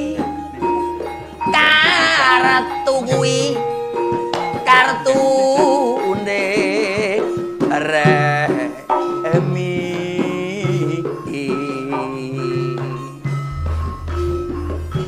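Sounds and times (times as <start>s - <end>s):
man singing with vibrato: 0.0s - 0.8s, 1.4s - 3.6s, 4.6s - 15.0s
gamelan accompaniment: 0.0s - 15.0s
drum strikes: 13.5s - 15.0s.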